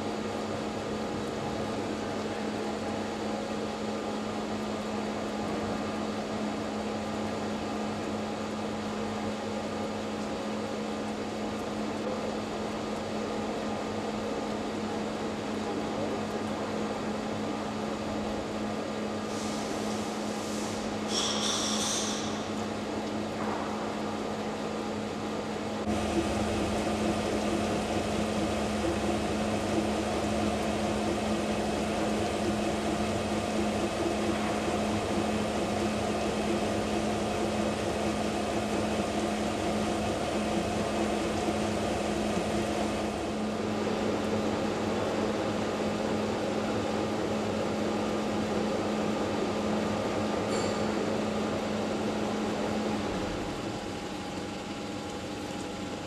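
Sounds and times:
lathe running with steady hum: 0:25.0 - 0:56.0.

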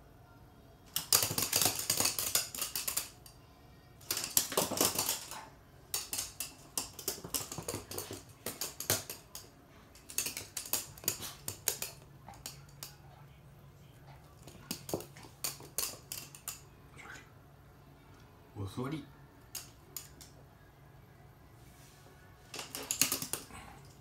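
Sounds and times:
dog claws clicking on floor: 0:00.9 - 0:03.4, 0:04.0 - 0:13.0, 0:14.2 - 0:16.7, 0:19.4 - 0:20.4, 0:22.5 - 0:24.0.

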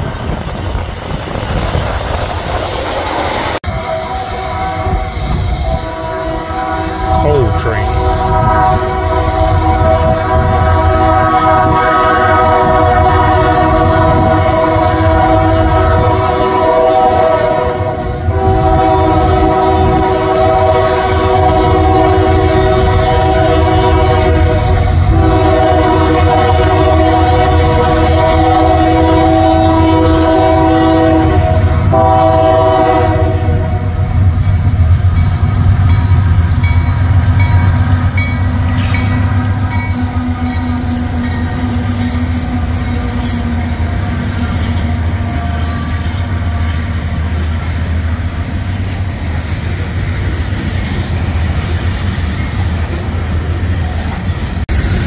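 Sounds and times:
rolling train wheels: 0:00.0 - 0:07.2, 0:08.0 - 0:55.0
locomotive air horn blasts: 0:03.7 - 0:34.2.

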